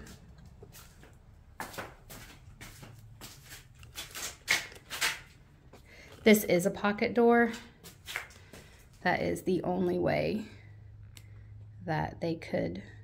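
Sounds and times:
footsteps scuffing on concrete: 0.0 - 5.9, 7.4 - 9.0.

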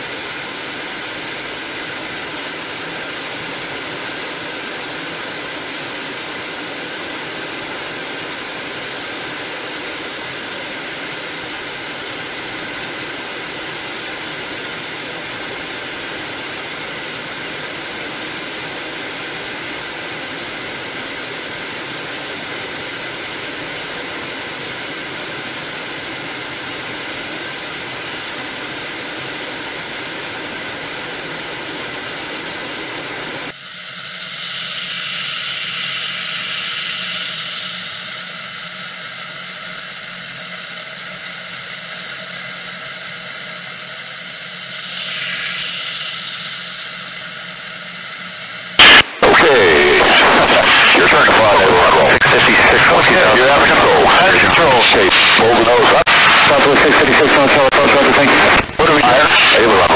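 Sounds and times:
jet cockpit noise: 0.0 - 59.9
high whine: 32.7 - 59.9.

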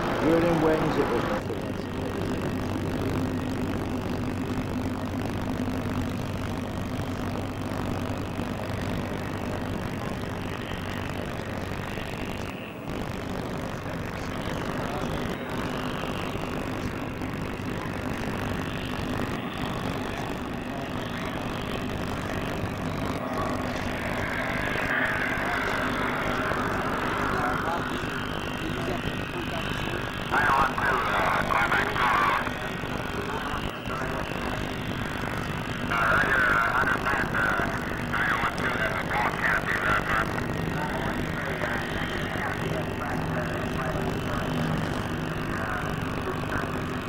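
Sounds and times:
distant aircraft engine drone: 0.0 - 47.0
low hum: 0.0 - 47.0.

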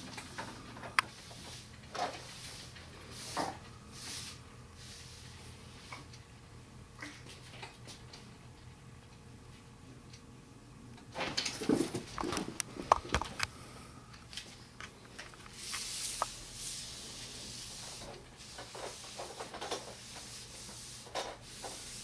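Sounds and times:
cats scuffling: 11.2 - 13.4.

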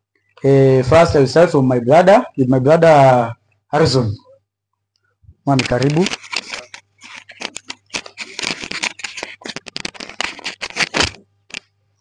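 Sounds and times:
microphone handling noise: 5.2 - 11.6.

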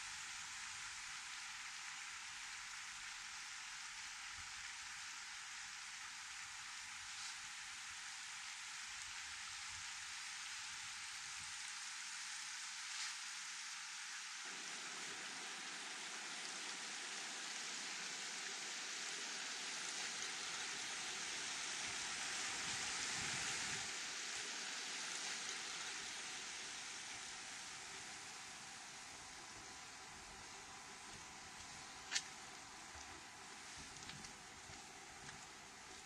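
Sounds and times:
wind and water hiss: 0.0 - 36.0.

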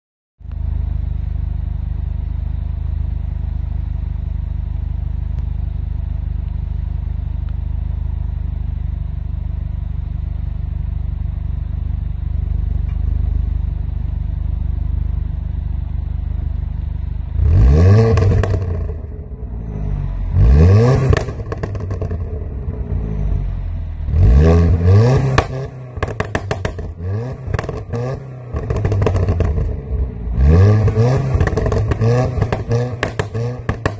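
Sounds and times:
car engine idling and revving: 0.4 - 33.9
exhaust popping and crackling: 9.8 - 33.9.

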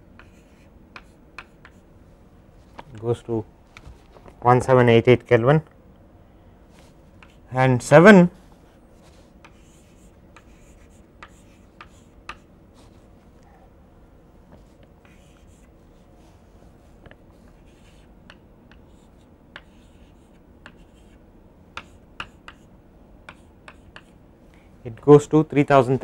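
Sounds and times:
faint steady hum: 0.0 - 26.0
chalk tapping on blackboard: 0.2 - 1.8, 7.2 - 7.4, 9.4 - 12.5, 17.5 - 24.2.

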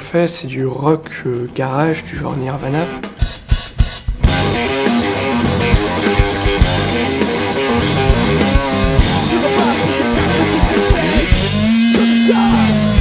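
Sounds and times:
drum kit beat: 2.9 - 13.0
loud electric guitar: 4.2 - 13.0.

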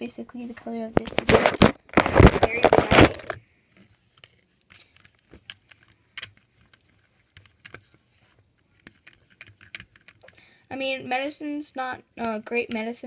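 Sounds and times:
small plastic items clicking: 4.2 - 8.0, 8.6 - 10.5.

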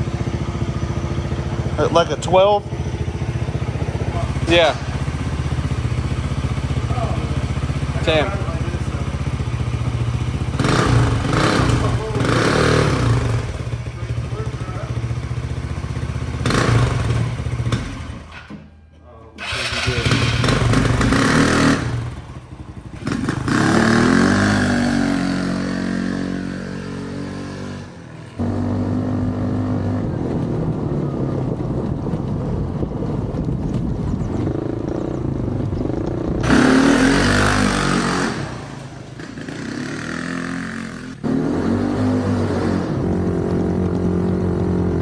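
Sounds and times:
buggy engine revving: 0.0 - 18.4, 19.4 - 45.0.

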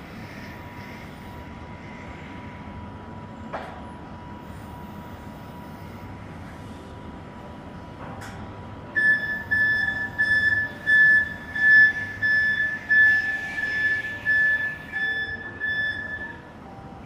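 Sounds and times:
forklift warning beeps: 8.9 - 17.0.

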